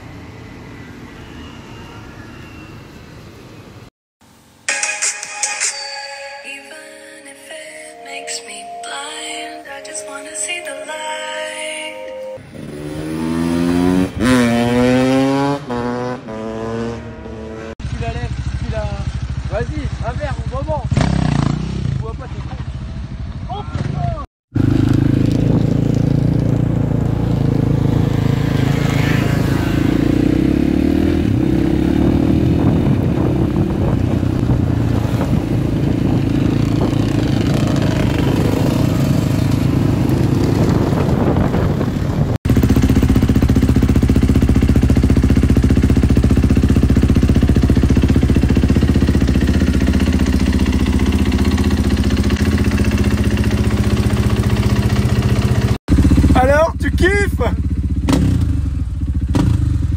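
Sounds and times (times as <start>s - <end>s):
motorcycle engine riding: 12.4s - 59.9s
dirt bike engine running: 17.1s - 59.9s.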